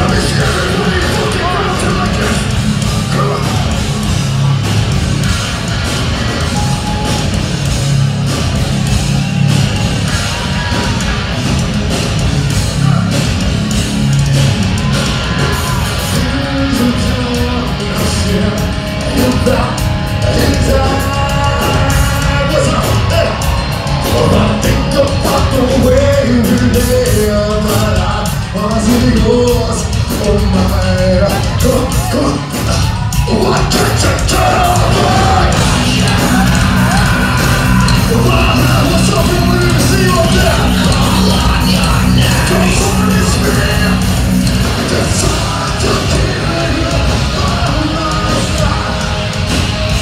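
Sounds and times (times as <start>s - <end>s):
bass and drums: 0.0s - 50.0s
loud distorted guitars: 0.0s - 50.0s
singer's voice: 0.0s - 50.0s.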